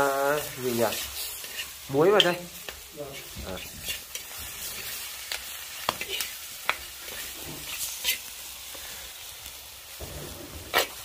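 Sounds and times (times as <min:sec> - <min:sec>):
chicken sizzling in wok: 0:00.0 - 0:11.0
metal ladle scraping pan: 0:00.4 - 0:02.4, 0:03.1 - 0:05.0, 0:07.0 - 0:08.3, 0:10.0 - 0:11.0.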